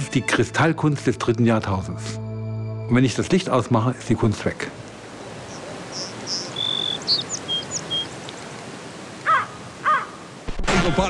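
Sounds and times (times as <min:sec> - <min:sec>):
steady background hiss: 0:03.4 - 0:11.0
birds chirping and calling: 0:05.0 - 0:08.6, 0:09.2 - 0:10.2.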